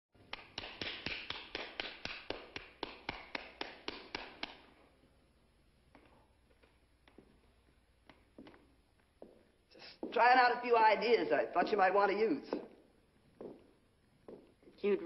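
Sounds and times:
person clapping slowly: 0.2 - 4.7.

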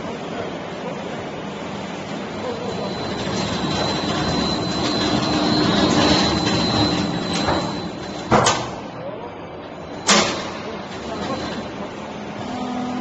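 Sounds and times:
high machine whine: 0.0 - 13.0.

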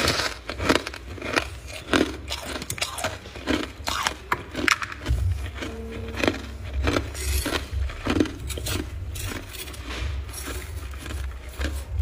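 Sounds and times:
ice being chewed: 0.0 - 12.0
low rumble: 4.8 - 12.0.

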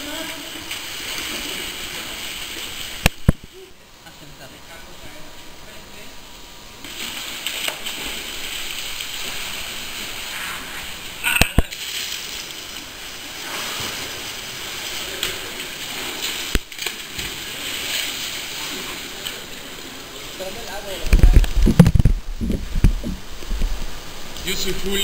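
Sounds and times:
water sloshing and splashing: 0.0 - 3.6, 6.7 - 24.4.

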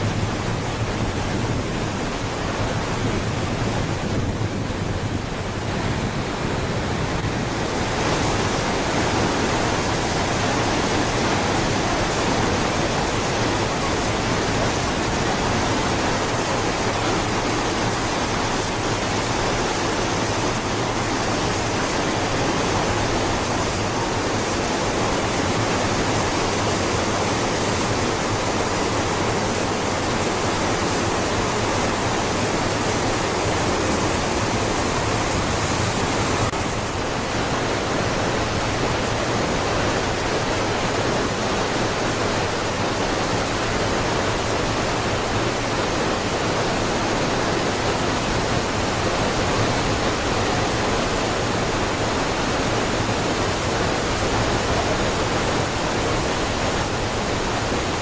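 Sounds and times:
waterfall roaring: 0.0 - 58.0.

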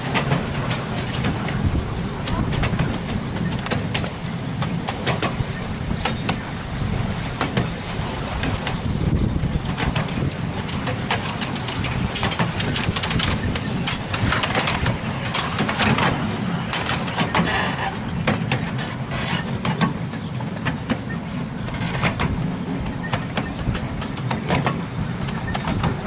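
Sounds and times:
locomotive engine rumble: 0.0 - 26.0
train wheels clicking over rails: 0.0 - 26.0.

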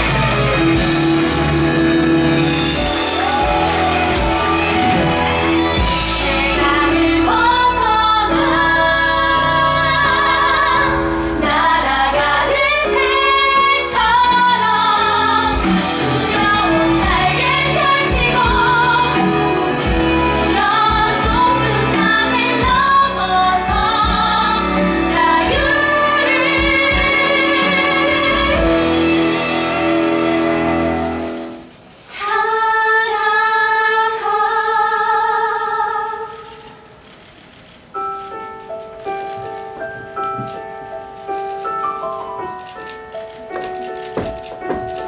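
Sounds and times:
women singing together: 6.2 - 29.0, 32.1 - 36.6.

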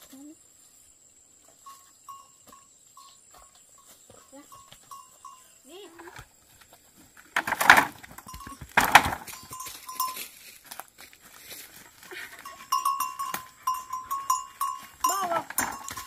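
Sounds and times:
light bell-like clinks: 1.6 - 5.6, 9.3 - 10.5, 12.2 - 16.0
cattle snorting: 12.0 - 14.8.

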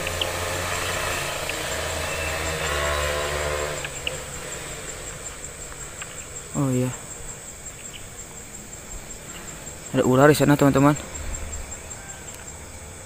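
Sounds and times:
pitched drone: 0.0 - 7.4
insect trill: 0.0 - 13.0
low engine hum: 0.0 - 13.0.

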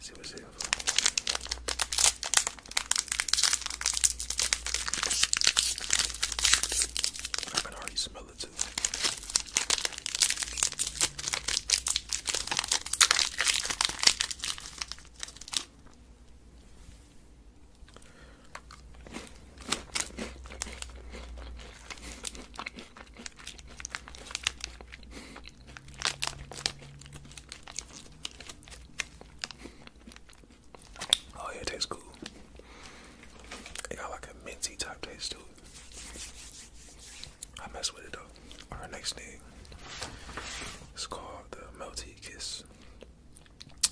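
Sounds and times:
crunching and chewing: 0.6 - 16.0, 17.7 - 33.9, 42.7 - 43.9
wrapper crinkling: 0.6 - 16.0, 23.2 - 25.0, 25.7 - 31.3.

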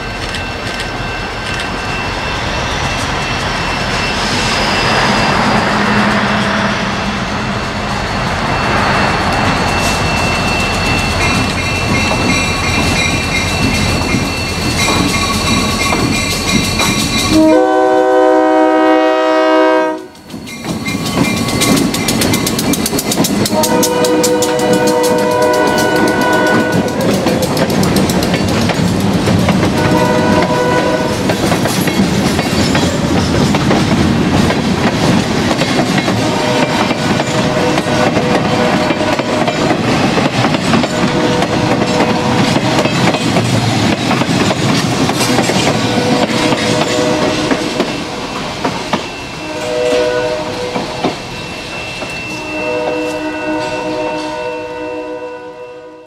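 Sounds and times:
train wheels clattering over rail joints: 9.8 - 17.4, 20.2 - 49.2
locomotive horn blasts: 17.3 - 20.2, 23.5 - 27.1, 29.7 - 31.2, 45.9 - 48.2, 49.4 - 50.9, 52.3 - 56.0.

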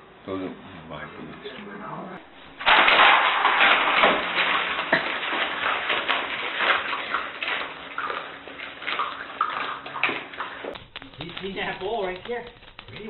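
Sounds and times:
puppies lapping and chewing: 4.8 - 13.0.

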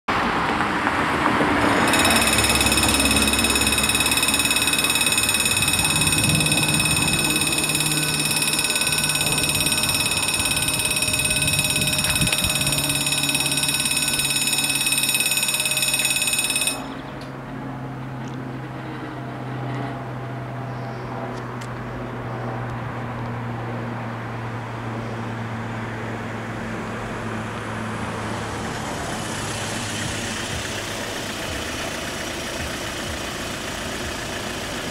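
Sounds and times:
car driving over level crossing: 1.6 - 17.2
crossing warning bells ringing: 1.7 - 20.0.

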